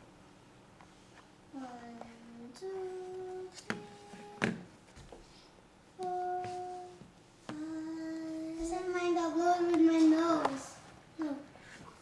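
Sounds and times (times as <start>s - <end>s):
person humming held notes: 1.6s - 4.6s, 6.0s - 8.7s.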